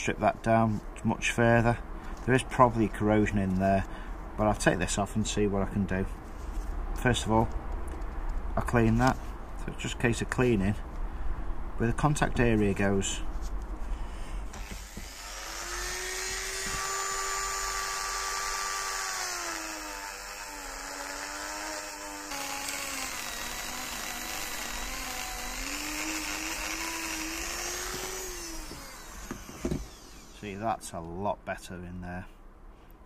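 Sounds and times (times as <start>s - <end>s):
rotary tool wire brush whine: 14.5s - 30.5s.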